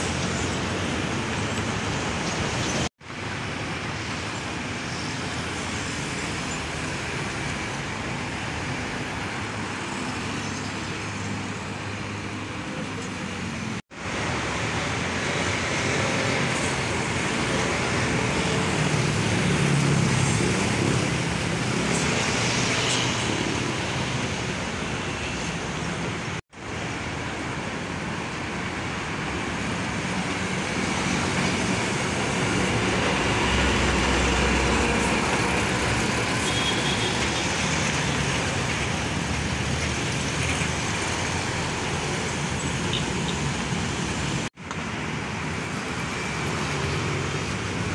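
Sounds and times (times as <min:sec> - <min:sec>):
diesel trucks driving past: 0:30.2 - 0:47.9.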